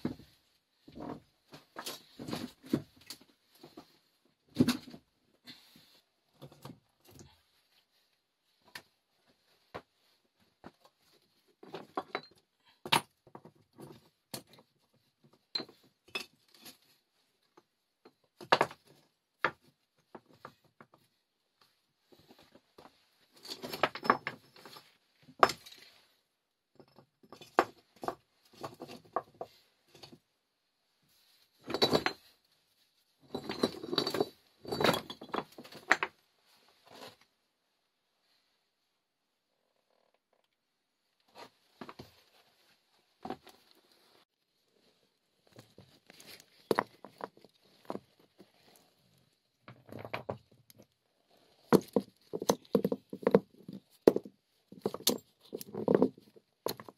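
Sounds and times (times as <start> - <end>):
hard objects clicking and knocking: 45.5 - 48.3, 49.6 - 51.0, 51.6 - 56.9.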